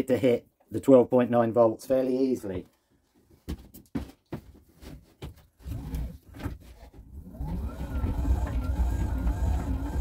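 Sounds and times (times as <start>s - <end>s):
hub motor whirring and whining: 7.2s - 10.0s.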